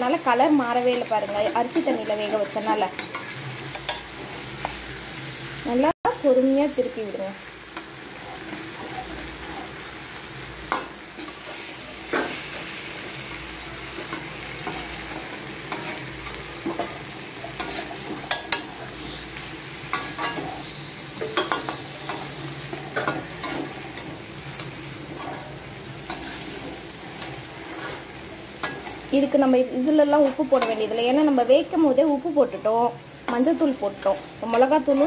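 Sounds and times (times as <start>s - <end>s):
banana slices sizzling in oil: 0.0s - 35.0s
metal spoon scraping a pan: 0.3s - 4.9s, 7.7s - 29.1s, 29.7s - 31.4s.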